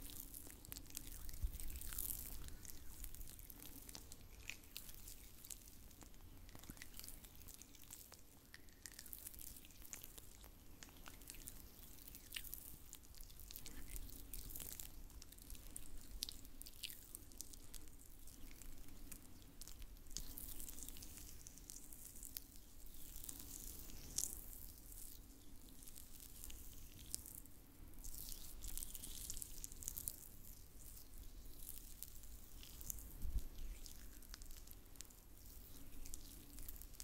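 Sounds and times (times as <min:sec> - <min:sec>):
wet sticky clicks: 0:00.0 - 0:24.4.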